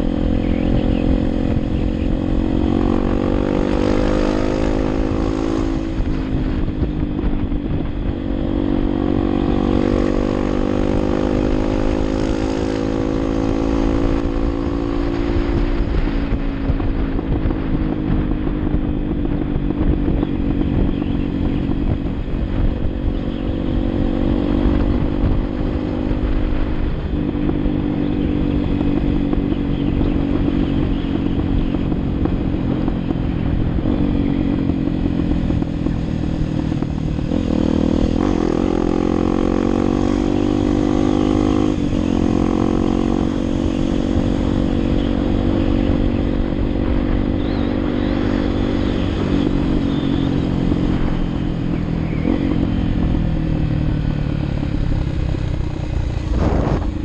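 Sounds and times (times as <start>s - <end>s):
motorcycle engine running: 0.0s - 57.0s
wind noise rushing: 0.0s - 57.0s.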